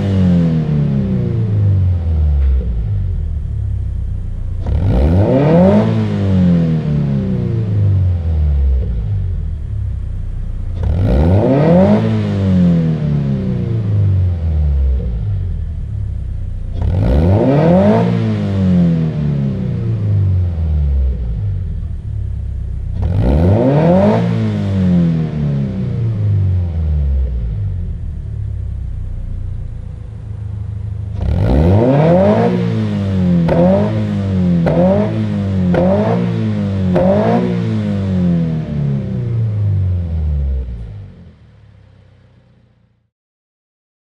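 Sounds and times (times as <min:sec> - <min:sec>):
car engine revving: 0:00.0 - 0:42.9.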